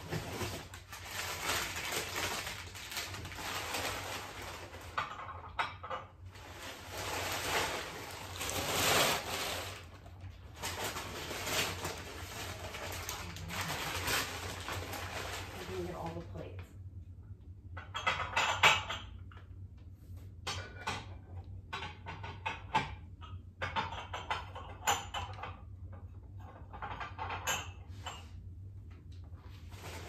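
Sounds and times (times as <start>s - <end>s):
paper crinkling and rustling: 0.0s - 5.4s, 6.3s - 16.4s, 29.4s - 30.0s.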